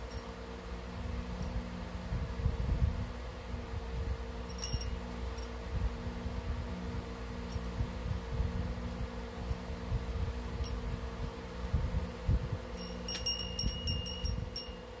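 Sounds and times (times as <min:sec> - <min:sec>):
steady low hum: 0:00.0 - 0:15.0
metal bell clinking: 0:04.5 - 0:05.5, 0:12.8 - 0:15.0.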